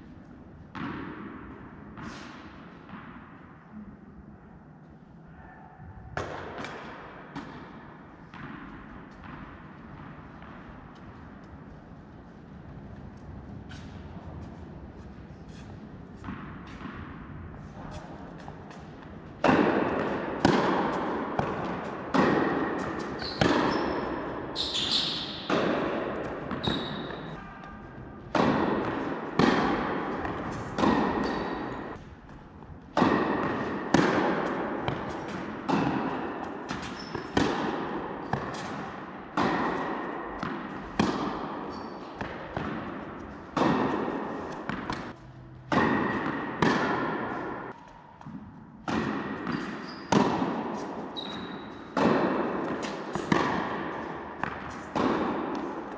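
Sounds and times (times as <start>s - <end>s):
tennis ball bouncing on court: 0.6s - 3.6s, 6.2s - 55.9s
tennis ball struck by rackets: 0.7s - 3.5s, 6.1s - 11.6s, 13.2s - 55.9s.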